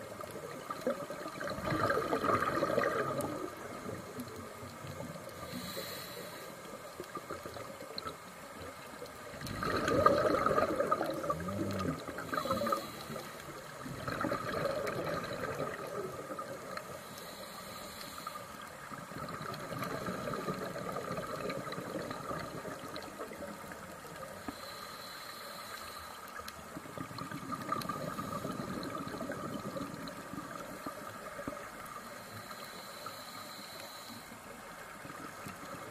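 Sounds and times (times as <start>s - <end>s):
steady underwater hiss: 0.0s - 35.9s
diver's exhaled bubbles: 0.7s - 4.0s, 9.4s - 13.2s, 13.8s - 16.7s, 19.1s - 23.5s, 26.9s - 31.6s.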